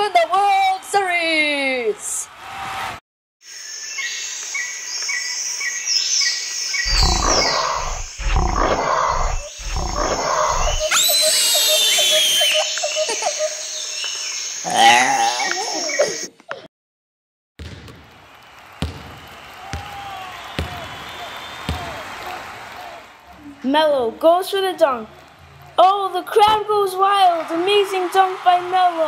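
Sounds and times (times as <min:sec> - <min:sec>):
lion roars: 0:06.9 - 0:10.9
gliding animal cry: 0:06.9 - 0:12.5
fast rattling call: 0:06.9 - 0:12.7
high-pitched animal calls: 0:06.9 - 0:13.8
high falling whistles: 0:10.2 - 0:13.4.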